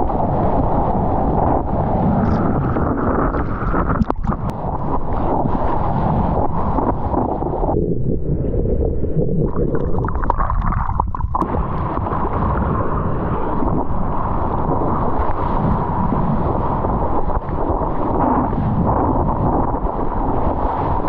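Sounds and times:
wind rumbling on microphone: 0:00.0 - 0:21.0
rushing water: 0:02.2 - 0:07.2, 0:09.4 - 0:18.3
water splashes: 0:03.3 - 0:06.8, 0:09.4 - 0:14.4.

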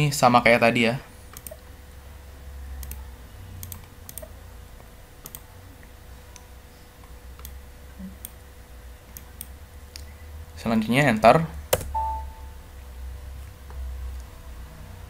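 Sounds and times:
low steady hum: 0:00.0 - 0:15.0
mouse clicks: 0:01.3 - 0:01.6, 0:02.8 - 0:03.0, 0:03.6 - 0:04.4, 0:05.2 - 0:05.5, 0:07.4 - 0:07.6
keyboard keystrokes: 0:05.2 - 0:05.5, 0:11.7 - 0:12.2.

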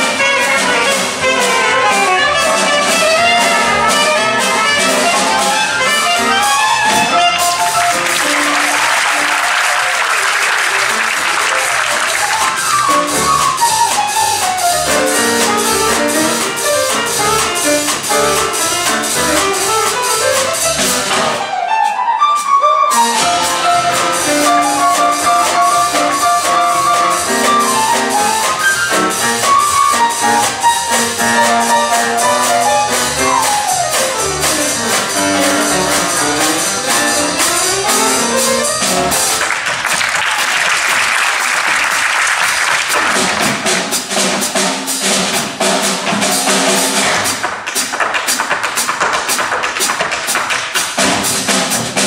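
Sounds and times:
piano solo: 0:00.0 - 0:39.9
jazz band playing: 0:00.0 - 0:52.0.

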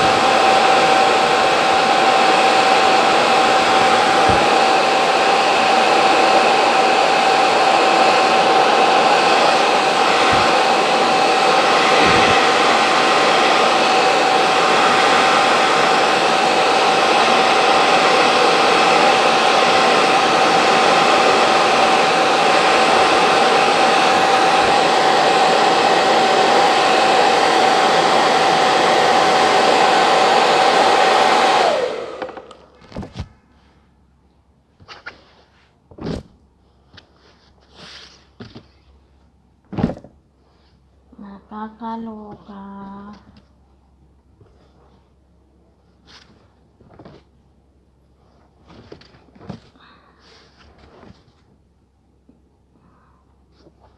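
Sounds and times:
hair dryer running: 0:00.0 - 0:32.8.

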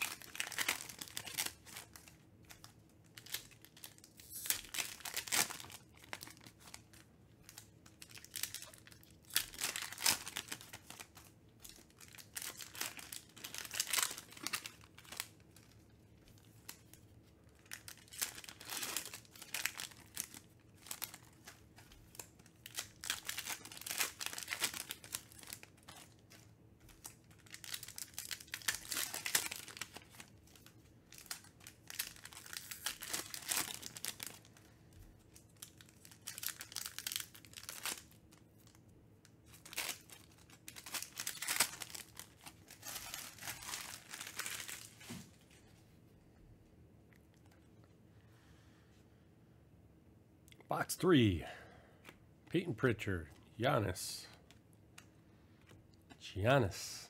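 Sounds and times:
foil wrappers crinkling and tearing: 0:00.0 - 0:38.8, 0:39.4 - 0:45.6.

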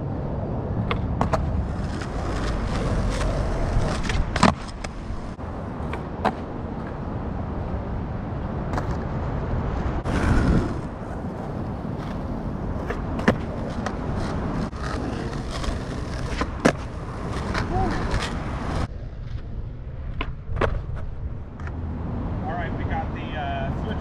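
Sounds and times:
skateboard wheels rolling on asphalt: 0:00.0 - 0:24.0
skateboard clacking on ground: 0:00.8 - 0:07.0, 0:08.7 - 0:09.1, 0:10.1 - 0:21.8.

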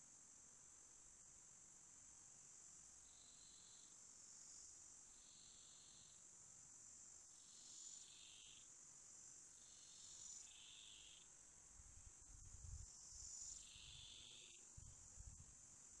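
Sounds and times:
high-pitched insect trill: 0:02.4 - 0:16.0
lower insect trills: 0:03.0 - 0:06.3, 0:07.3 - 0:08.7, 0:09.4 - 0:11.4, 0:12.6 - 0:16.0.

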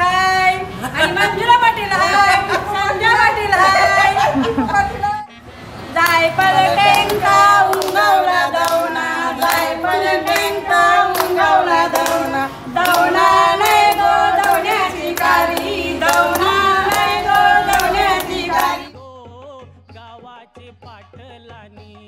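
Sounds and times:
women singing folk song: 0:00.0 - 0:05.2, 0:05.9 - 0:19.0
rhythmic hand claps: 0:06.0 - 0:18.9.

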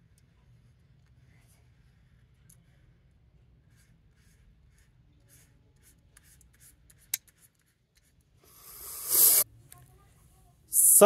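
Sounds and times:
paintbrush dabbing on paper: 0:03.6 - 0:09.4
hissing rush: 0:08.5 - 0:09.4.

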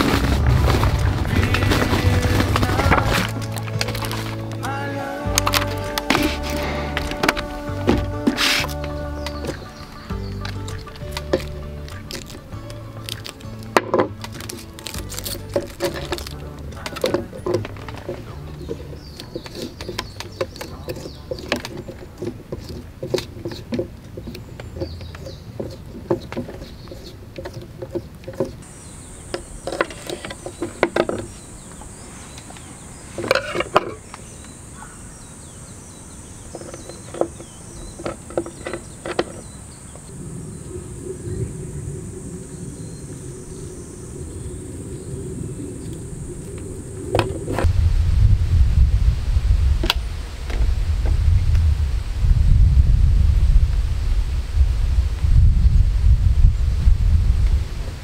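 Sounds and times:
high-pitched whine: 0:00.0 - 0:12.1.

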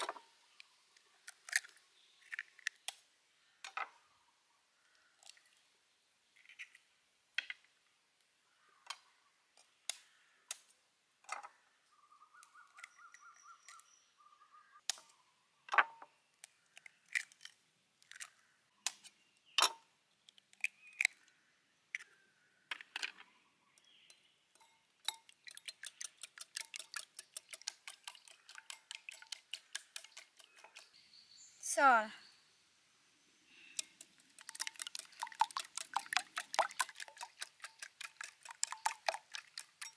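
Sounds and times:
eggs being beaten in bowl: 0:25.1 - 0:30.9, 0:33.8 - 0:39.9
knife cracking eggs on bowl: 0:25.1 - 0:30.9.

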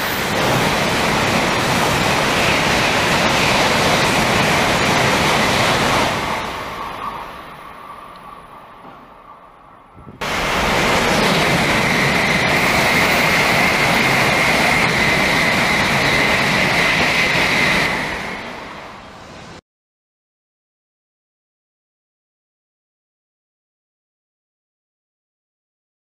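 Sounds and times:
high-speed train passing: 0:00.0 - 0:19.6.

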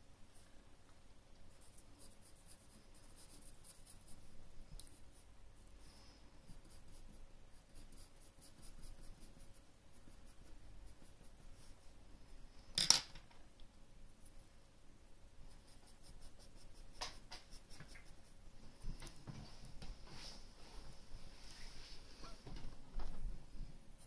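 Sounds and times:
pencil scratching on paper: 0:01.5 - 0:12.0, 0:15.4 - 0:18.4.

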